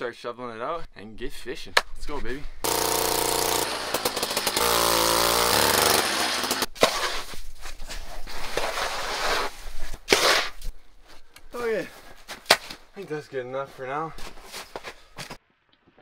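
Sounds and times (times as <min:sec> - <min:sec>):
cordless drill whining: 0:02.6 - 0:07.2
shovel scraping snow and ice: 0:05.6 - 0:10.7.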